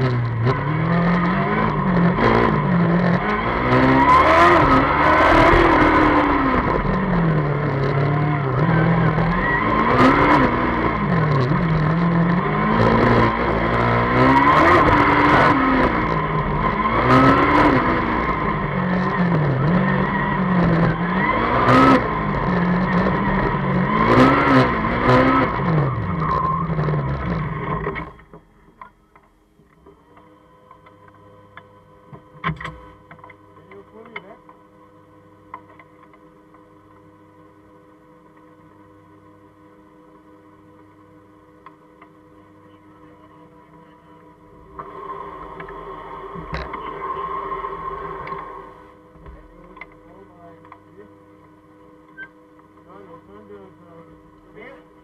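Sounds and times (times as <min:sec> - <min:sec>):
race car engine revving: 0:00.0 - 0:28.2, 0:43.4 - 0:51.1
steady whine: 0:00.0 - 0:55.0.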